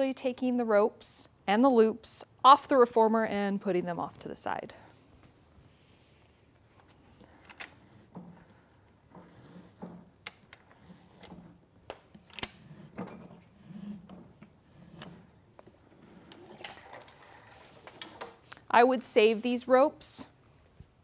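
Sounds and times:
rope and straps rubbing: 5.3s - 11.8s, 12.6s - 18.1s.

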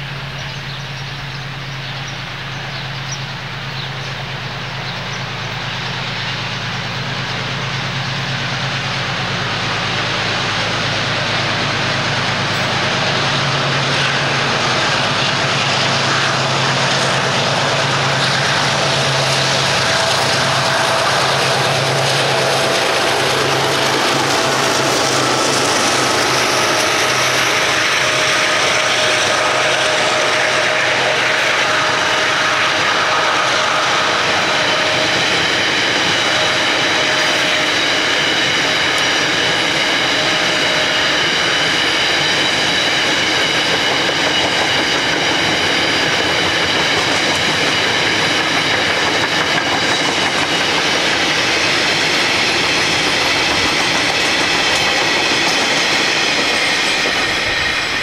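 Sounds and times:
train wagons rolling on rails: 0.0s - 58.0s
wheels squealing: 2.8s - 58.0s.

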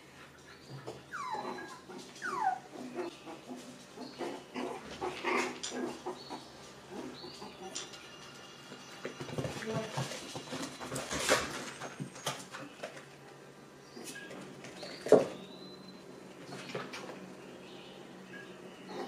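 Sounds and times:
puppies whimpering and yelping: 0.5s - 8.4s.

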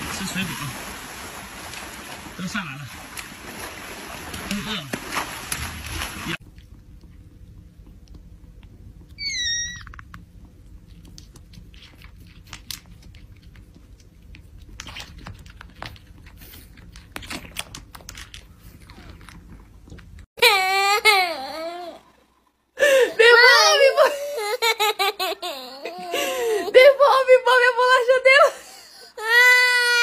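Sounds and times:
loud high wavering voice: 23.2s - 24.2s.

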